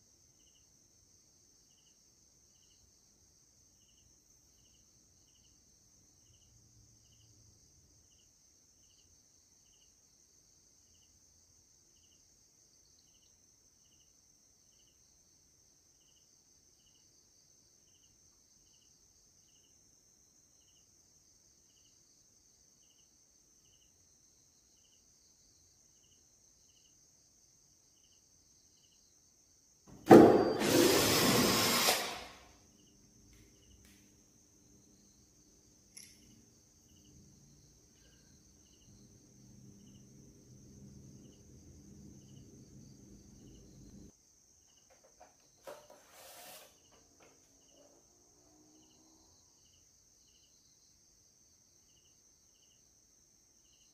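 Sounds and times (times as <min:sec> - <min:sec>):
cordless drill running: 0:30.1 - 0:32.4
faint high whine: 0:30.1 - 0:44.1.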